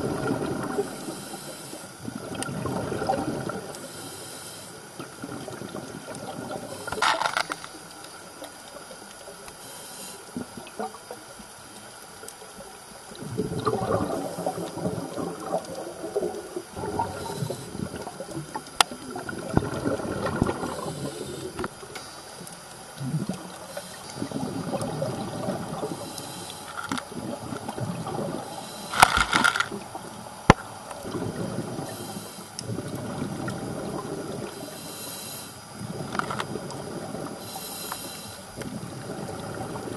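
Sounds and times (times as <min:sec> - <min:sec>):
underwater bubbles gurgling: 0:00.0 - 0:39.9
sharp clicks: 0:28.9 - 0:29.7.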